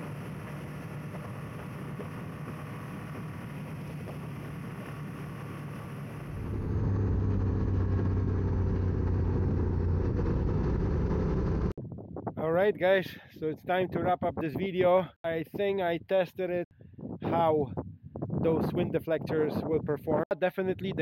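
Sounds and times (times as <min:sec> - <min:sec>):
motorcycle engine running: 0:00.0 - 0:11.7
wind rushing over microphone: 0:00.0 - 0:21.0.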